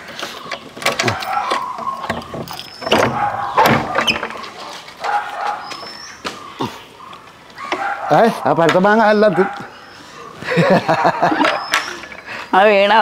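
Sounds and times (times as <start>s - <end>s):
lock and door clicking: 0.5s - 5.2s
door squeaking: 0.5s - 6.2s, 11.4s - 12.3s.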